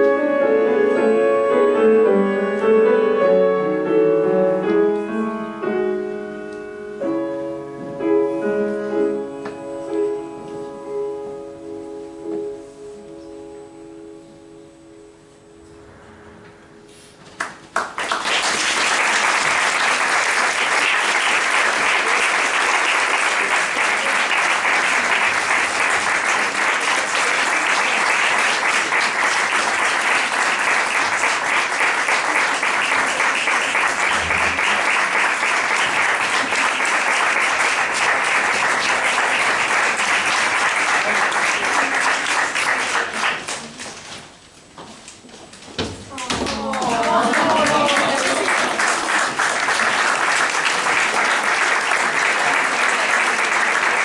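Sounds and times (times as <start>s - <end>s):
music: 0.0s - 17.7s, 31.0s - 41.4s
audience applause: 17.4s - 43.8s, 46.5s - 54.0s.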